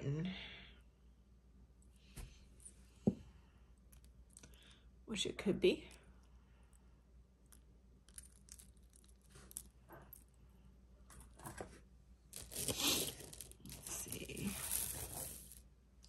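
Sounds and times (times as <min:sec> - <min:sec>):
packaging rustling: 0:12.3 - 0:15.6.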